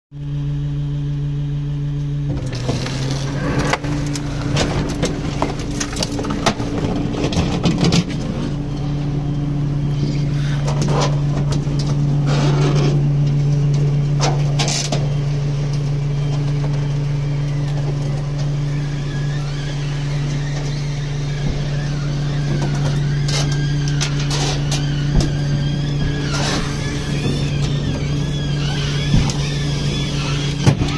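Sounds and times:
winch drive humming: 0.2s - 30.9s
squeaking: 9.8s - 30.9s.

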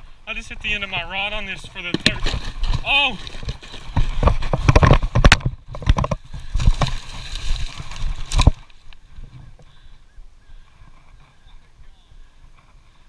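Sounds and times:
plastic box clattering on stones: 1.7s - 8.7s.

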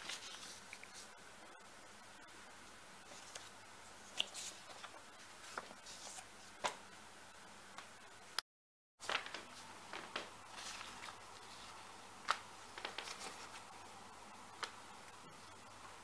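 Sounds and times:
paper rustling: 0.0s - 1.1s, 3.0s - 6.8s, 9.0s - 13.8s.

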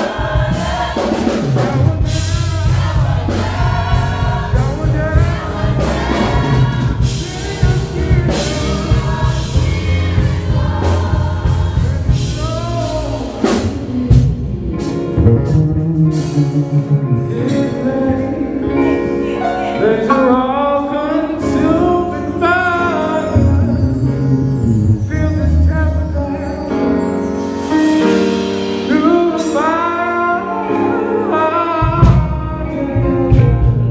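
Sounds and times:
choir singing: 0.0s - 14.2s, 17.2s - 24.7s, 28.9s - 33.1s
band with electric guitars: 0.0s - 22.3s, 23.0s - 33.9s
man singing into a microphone: 17.2s - 19.0s, 19.7s - 23.8s, 28.9s - 33.9s.

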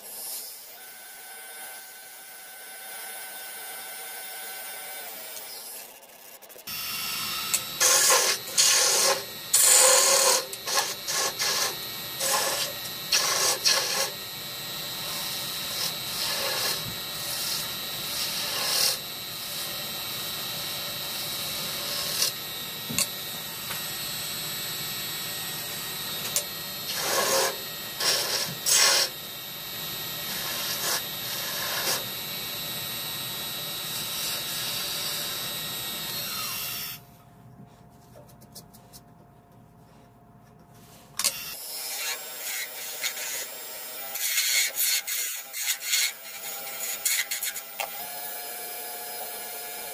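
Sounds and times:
wood lathe whining: 0.0s - 37.0s, 41.4s - 49.9s
turning tool scraping wood: 7.6s - 14.2s, 15.0s - 19.0s, 26.9s - 29.1s.

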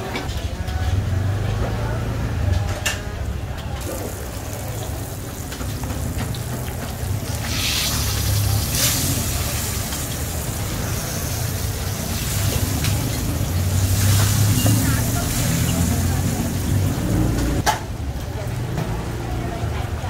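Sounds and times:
fish sizzling in hot oil: 3.8s - 17.2s.

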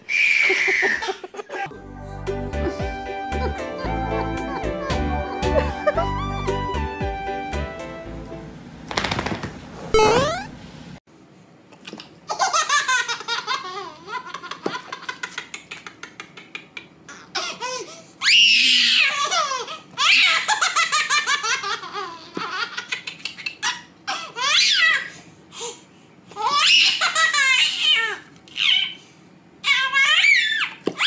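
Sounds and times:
baby laughing: 0.3s - 1.7s, 2.6s - 6.7s, 12.3s - 18.0s, 18.8s - 25.1s, 26.4s - 29.0s.

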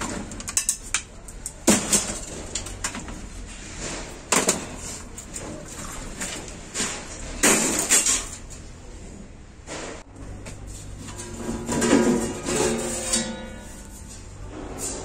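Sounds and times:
metal case clanking and scraping: 10.8s - 15.0s.

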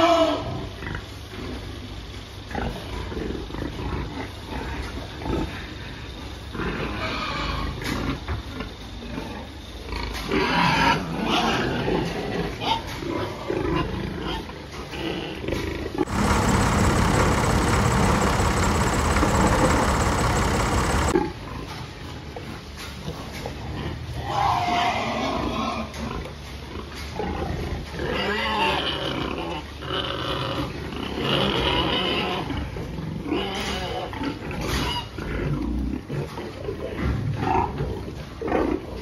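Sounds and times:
pigs grunting and squealing: 6.7s - 7.8s, 24.2s - 26.0s
loud harsh continuous noise: 16.0s - 21.2s.

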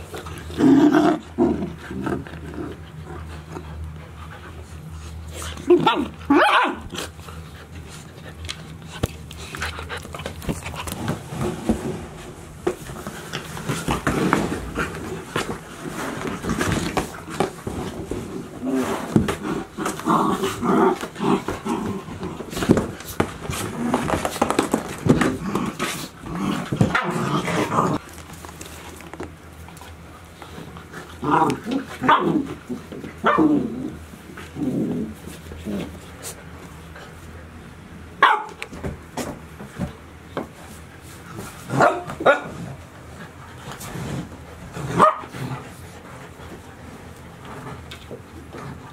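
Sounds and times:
puppies growling: 0.0s - 12.0s, 12.8s - 28.3s, 29.6s - 36.1s
puppies barking: 5.8s - 6.9s
paws scraping on cardboard and floor: 6.9s - 33.4s, 38.4s - 48.9s.

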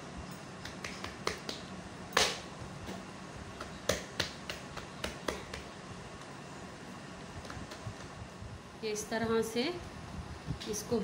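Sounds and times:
hands patting dough: 0.5s - 6.4s.

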